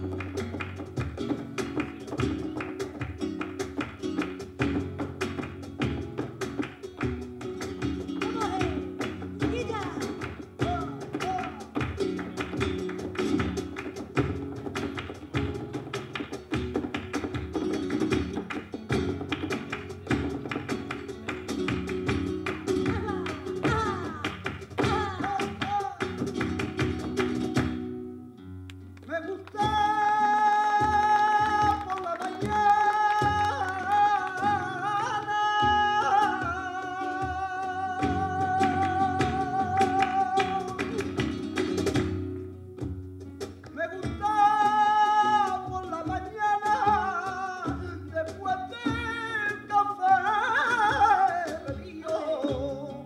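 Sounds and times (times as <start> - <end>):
hand clapping: 0.0 - 28.0, 28.6 - 52.7
hand percussion: 0.0 - 28.1, 29.0 - 53.0
flamenco guitar: 0.0 - 53.0
person singing: 10.6 - 11.8, 24.8 - 26.2, 29.1 - 41.3, 43.8 - 53.0.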